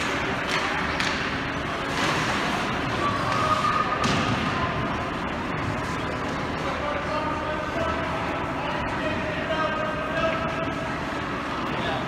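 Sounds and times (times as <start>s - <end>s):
hockey sticks and puck clacking: 0.0s - 4.4s
crowd hubbub: 0.0s - 12.0s.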